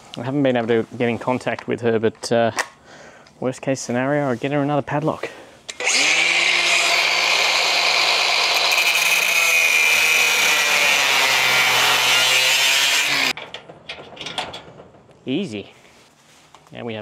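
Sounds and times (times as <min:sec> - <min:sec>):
angle grinder motor whine: 0:05.8 - 0:13.3
grinding disc on metal: 0:05.8 - 0:13.4.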